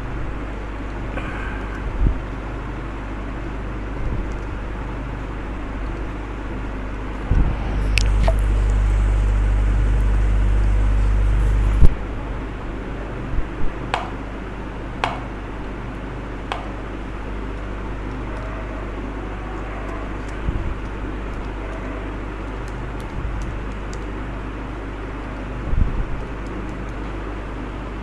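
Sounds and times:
electrical hum and fan noise: 0.0s - 28.0s
mouse clicks: 15.0s - 15.3s.

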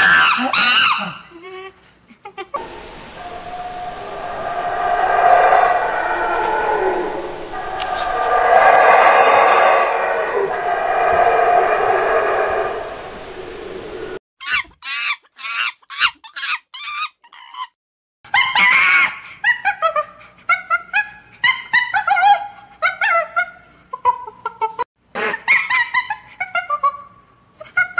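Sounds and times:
monkey high-pitched calls: 14.4s - 17.7s, 25.2s - 26.8s.

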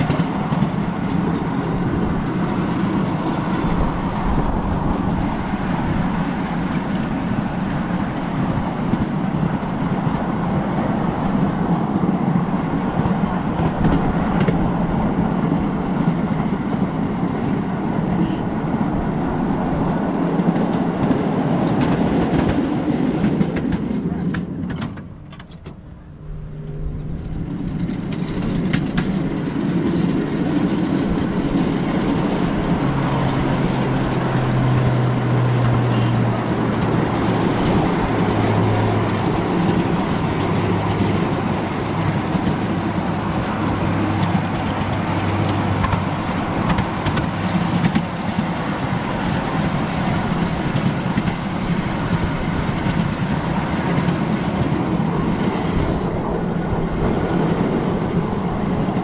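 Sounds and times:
miniature train wheels rumbling: 0.0s - 18.4s, 20.2s - 59.0s
low motor hum: 25.1s - 29.2s.

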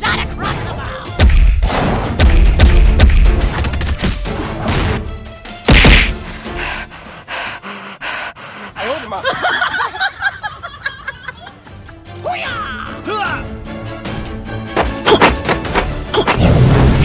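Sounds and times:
heavy whack: 5.7s - 6.2s, 14.7s - 16.5s.

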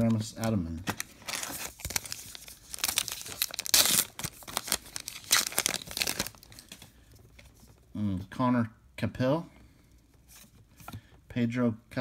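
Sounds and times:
paper wrapper crinkling and tearing: 0.0s - 6.9s.

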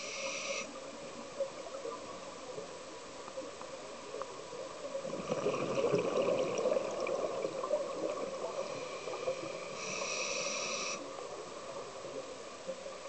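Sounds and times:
regulator inhale hiss: 0.0s - 0.8s, 8.4s - 11.2s
bubbles gurgling: 5.0s - 8.6s.

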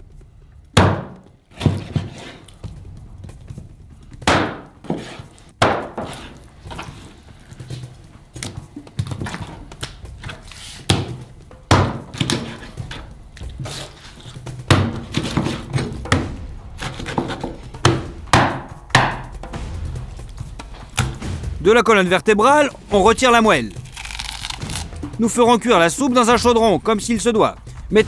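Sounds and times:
knife chopping through fish: 4.2s - 19.2s.

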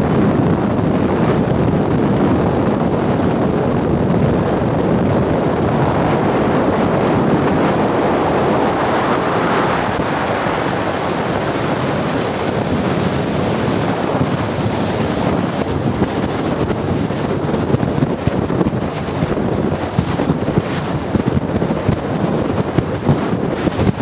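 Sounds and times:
outboard engines running: 0.0s - 24.0s
wind buffeting the microphone: 0.0s - 24.0s
water rushing past hull: 4.6s - 24.0s
high-pitched wavering whine: 14.3s - 24.0s.

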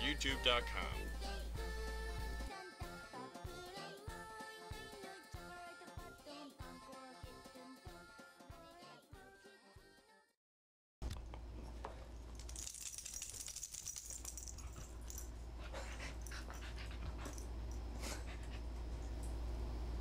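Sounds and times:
steady low hum: 11.1s - 20.0s.

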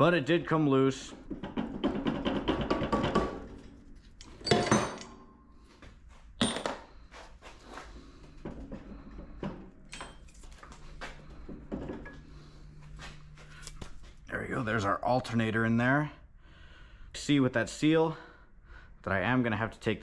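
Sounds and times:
metal clanks and clinks: 1.4s - 5.4s, 9.9s - 10.7s.

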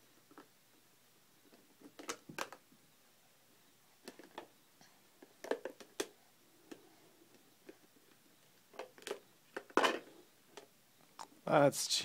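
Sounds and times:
plastic pieces clicking and knocking: 8.7s - 10.7s.

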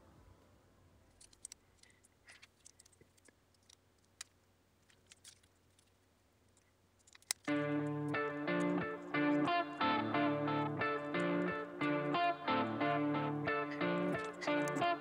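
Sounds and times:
small plastic parts clicking: 1.1s - 7.6s, 14.2s - 14.9s.

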